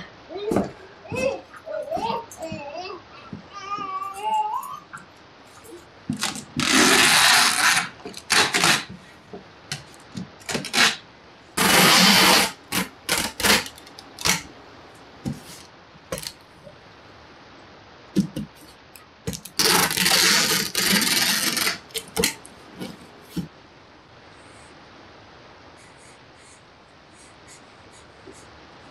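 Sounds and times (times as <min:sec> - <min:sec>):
packing tape pulled off dispenser: 0:06.2 - 0:08.9, 0:10.4 - 0:11.0, 0:11.6 - 0:14.4, 0:19.3 - 0:22.4
tape tearing: 0:06.2 - 0:08.9, 0:10.4 - 0:11.0, 0:11.6 - 0:14.5, 0:15.5 - 0:16.4, 0:19.3 - 0:23.0.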